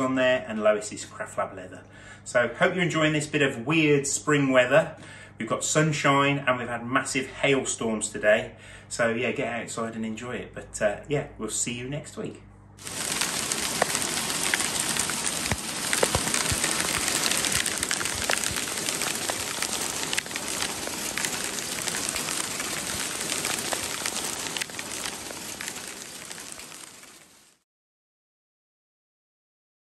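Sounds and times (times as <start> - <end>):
hail pelting wooden boards: 12.8 - 27.4.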